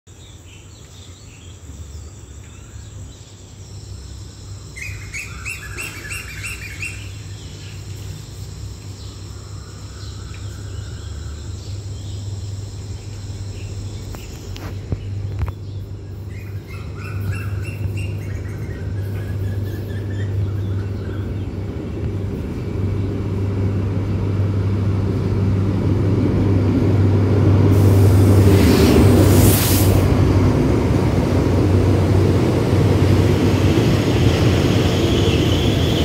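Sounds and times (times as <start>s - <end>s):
birds chirping: 0.1s - 23.5s
train engine drone: 0.1s - 36.0s
high insect trill: 0.2s - 21.5s.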